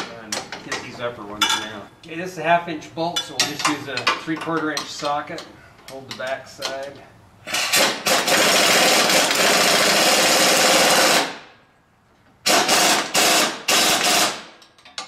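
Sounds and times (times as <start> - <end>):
pneumatic impact wrench hammering: 7.4 - 11.5, 12.4 - 15.0.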